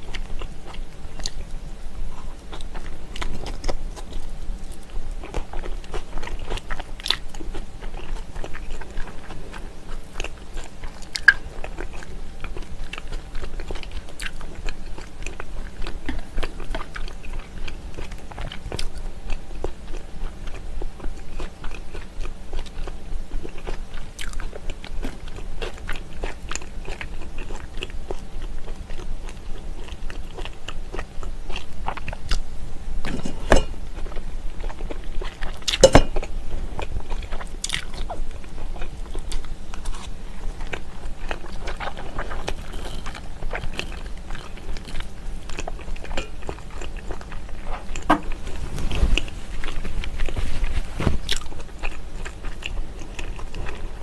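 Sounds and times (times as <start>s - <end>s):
close chewing with wet mouth sounds: 0.0s - 54.0s.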